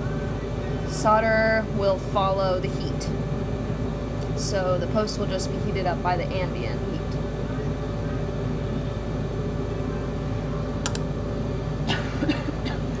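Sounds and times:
extractor fan humming: 0.0 - 13.0.

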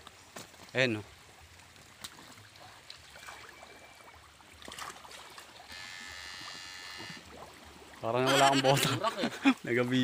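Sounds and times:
stream water trickling: 0.0 - 10.0
high-pitched buzz: 5.7 - 7.3.

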